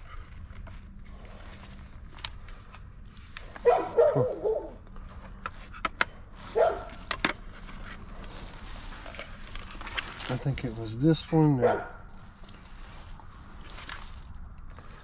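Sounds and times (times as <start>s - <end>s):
dog barking: 3.6s - 4.8s, 6.5s - 7.0s, 11.6s - 12.0s.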